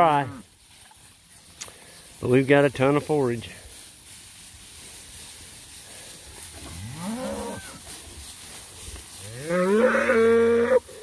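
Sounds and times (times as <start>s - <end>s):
cattle mooing: 6.6s - 7.8s, 9.2s - 10.9s.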